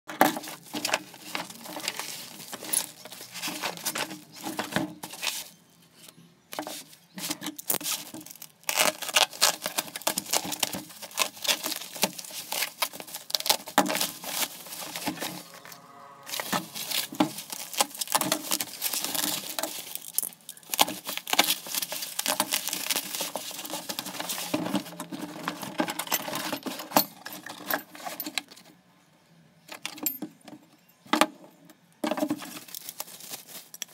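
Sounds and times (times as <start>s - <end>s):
bubble wrap crackling: 7.6s - 24.9s, 32.4s - 33.9s.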